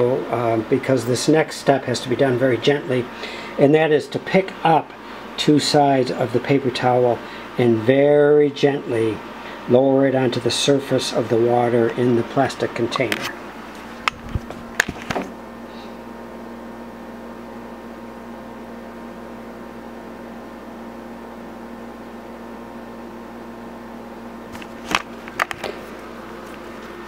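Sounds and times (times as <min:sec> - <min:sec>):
steady electrical hum: 0:00.0 - 0:27.0
camera handling knocks: 0:14.0 - 0:15.3, 0:24.6 - 0:25.8.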